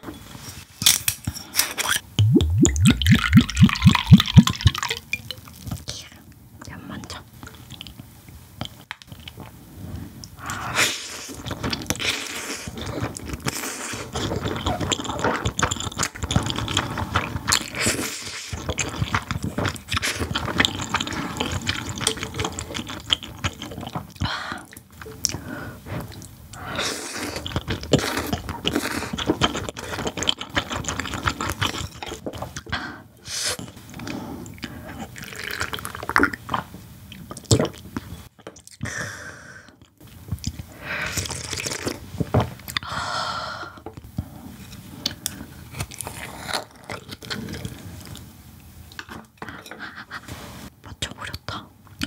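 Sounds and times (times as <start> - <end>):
slurping and chewing noodles: 10.4 - 32.7, 33.4 - 38.8.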